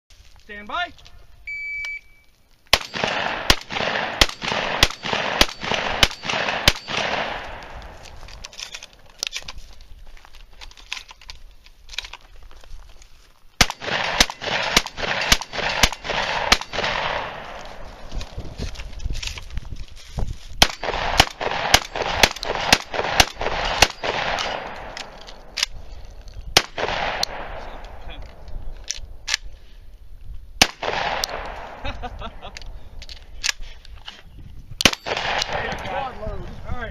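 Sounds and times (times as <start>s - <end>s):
shotgun shots: 2.7s - 8.0s, 13.6s - 18.4s, 20.6s - 25.7s, 26.5s - 28.4s, 30.6s - 32.1s, 34.8s - 36.1s.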